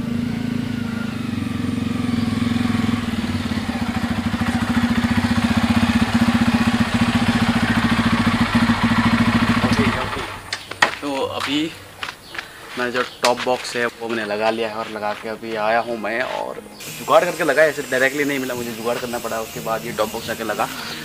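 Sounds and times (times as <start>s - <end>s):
motorcycle engine running: 0.0s - 10.6s, 16.8s - 21.0s.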